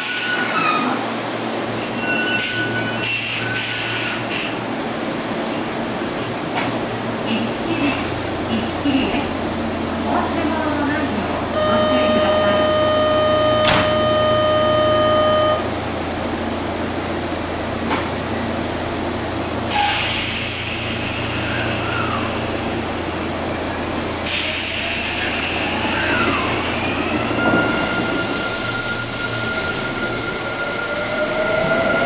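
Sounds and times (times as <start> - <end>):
electric train hum: 4.3 - 32.0
buzzer tone: 11.5 - 15.7.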